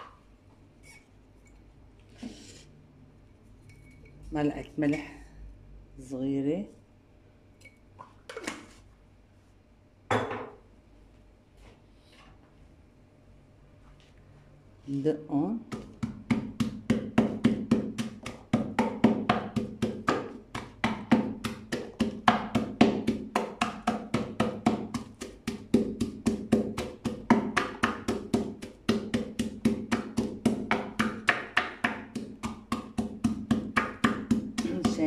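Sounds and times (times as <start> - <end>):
pestle pounding in wooden mortar: 15.6 - 35.0.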